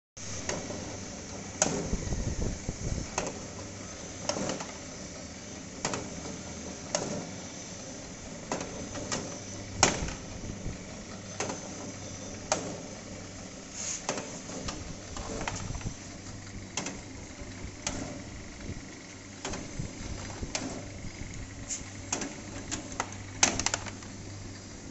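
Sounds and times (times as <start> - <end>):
machine motor humming: 0.2 - 24.9.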